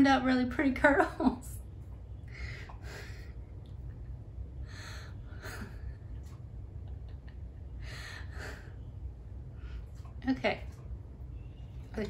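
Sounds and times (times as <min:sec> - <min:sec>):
low hum: 0:00.0 - 0:12.0
woman laughing softly: 0:05.2 - 0:08.8.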